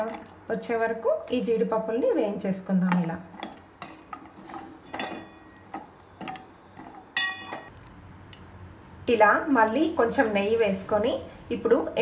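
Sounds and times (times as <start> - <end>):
nuts frying in fat: 2.6 - 11.2
metal spoon scraping a pan: 2.8 - 7.8.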